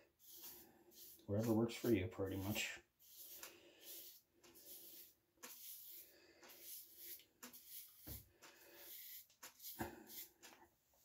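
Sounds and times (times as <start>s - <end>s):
razor scraping stubble: 0.2s - 8.2s, 8.8s - 10.5s.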